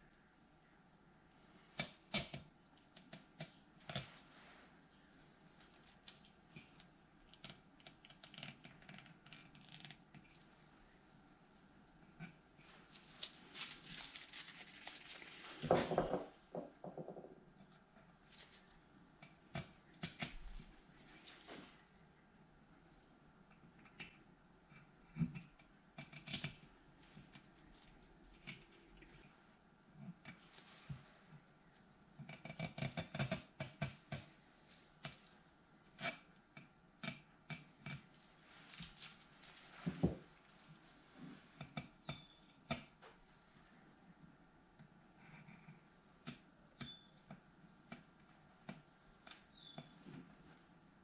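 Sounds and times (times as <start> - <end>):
tape rustling: 12.6 - 15.8.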